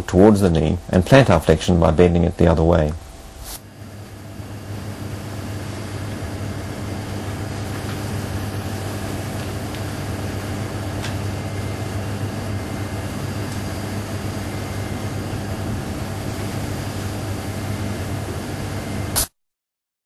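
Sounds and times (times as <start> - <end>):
steady low hum: 0.0 - 19.3
hiss: 3.1 - 4.2, 19.1 - 19.3.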